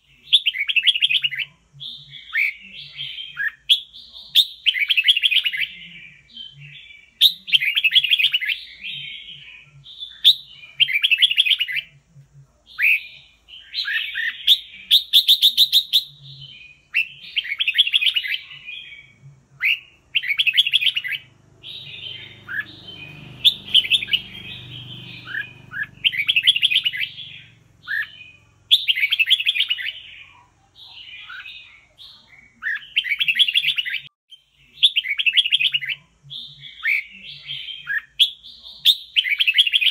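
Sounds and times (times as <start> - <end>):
bird singing chattering phrases: 0.0 - 39.9.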